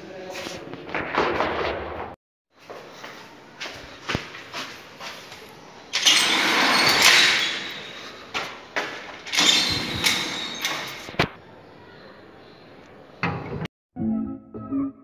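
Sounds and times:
metal gate clanks: 5.9s - 11.2s
metal gate rattling and scraping: 5.9s - 11.2s.

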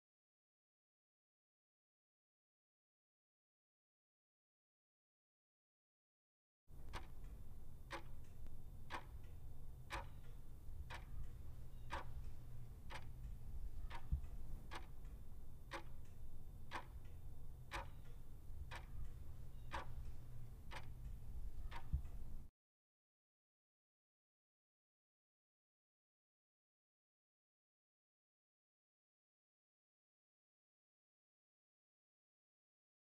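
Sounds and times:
low hum: 6.7s - 22.5s
timer ticking: 6.7s - 22.5s.

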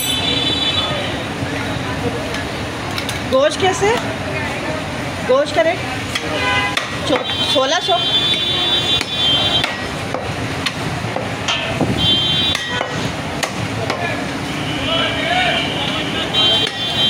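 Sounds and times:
cleaver chopping meat on wood: 12.5s - 14.1s.

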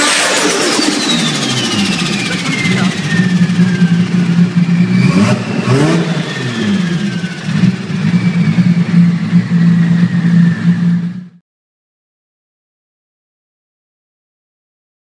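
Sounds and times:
high falling whistle: 0.0s - 11.2s
car engine idling lumpy: 1.2s - 11.4s.

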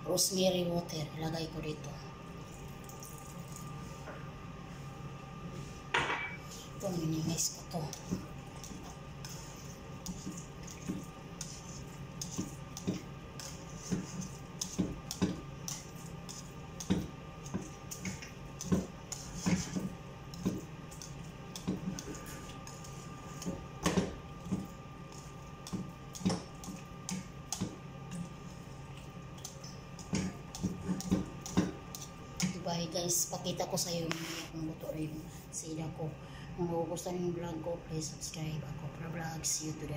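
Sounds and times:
steady low hum: 0.0s - 39.9s
whisk scraping and knocking pan: 7.2s - 28.7s, 29.4s - 32.7s.

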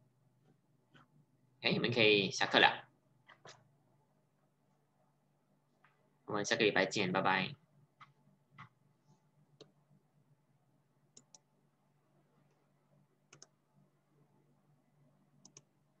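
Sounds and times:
low steady hum: 0.0s - 16.0s
computer mouse clicks: 9.5s - 9.8s, 11.1s - 11.5s, 13.3s - 13.6s, 15.4s - 15.8s.

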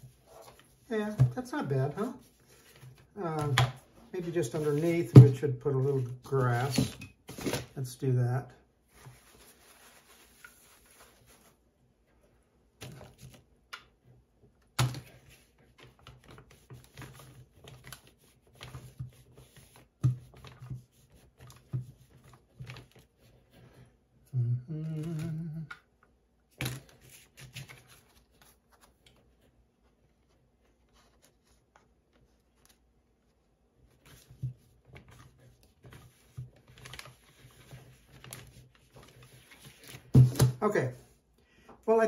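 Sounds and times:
person humming: 24.3s - 25.8s.

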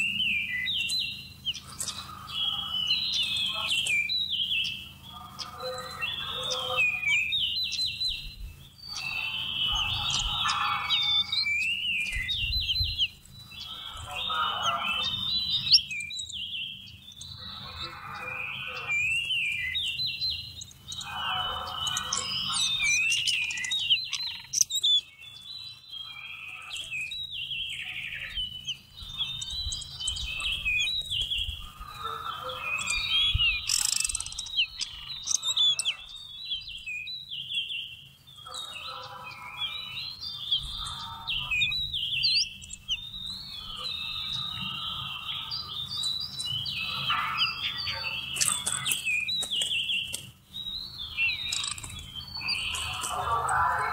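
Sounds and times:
bird singing whistled notes: 0.0s - 53.9s.

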